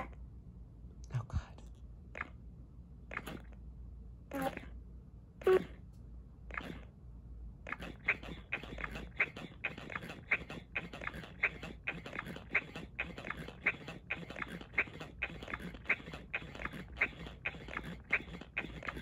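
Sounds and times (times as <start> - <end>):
toy doll sucking noises: 3.1 - 3.6, 4.3 - 4.8, 5.4 - 5.8, 6.5 - 6.9, 7.6 - 19.0.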